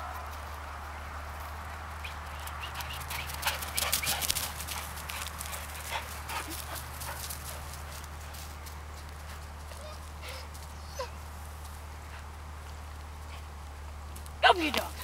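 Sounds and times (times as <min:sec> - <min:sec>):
dog paws pounding on grass: 0:00.0 - 0:15.0
steady low hum: 0:00.0 - 0:15.0.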